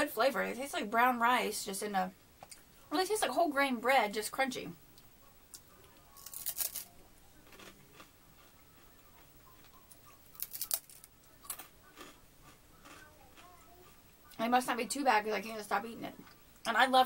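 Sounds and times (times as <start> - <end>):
crispbread crunching while chewed: 6.0 - 14.0.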